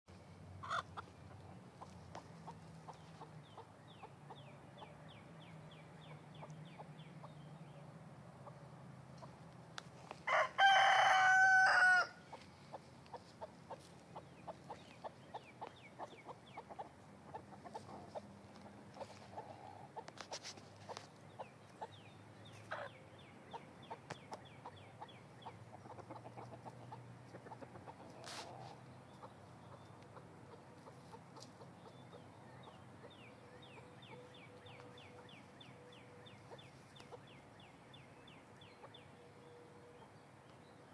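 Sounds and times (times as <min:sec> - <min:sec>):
hens clucking softly: 0:00.6 - 0:05.0, 0:08.3 - 0:11.1, 0:11.7 - 0:35.5
rooster crowing: 0:10.2 - 0:12.2.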